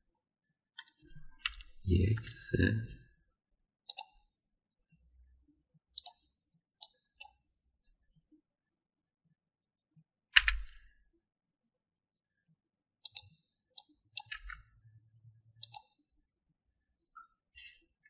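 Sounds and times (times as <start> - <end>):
computer mouse clicks: 3.8 - 4.3, 6.0 - 7.4, 13.0 - 14.6, 15.6 - 16.0
keyboard key presses: 15.6 - 15.9.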